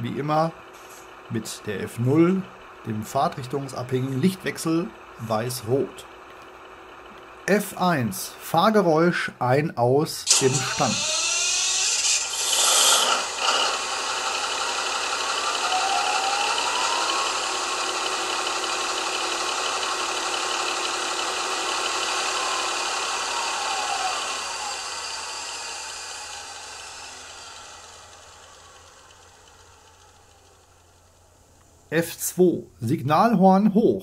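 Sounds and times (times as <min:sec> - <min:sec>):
model diesel engine sound: 0:00.0 - 0:34.0
rising and falling whine: 0:10.2 - 0:31.9.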